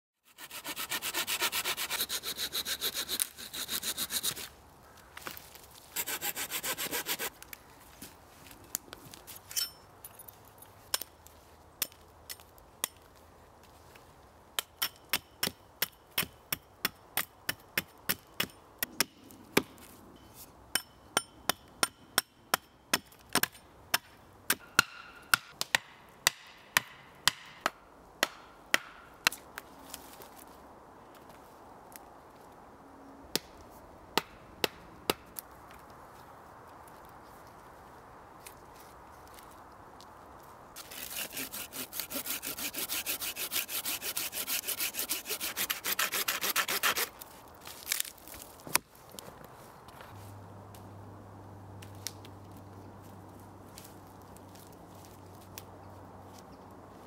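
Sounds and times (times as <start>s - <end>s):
hand saw cutting wood: 0.2s - 4.5s, 5.9s - 7.3s, 40.8s - 47.2s.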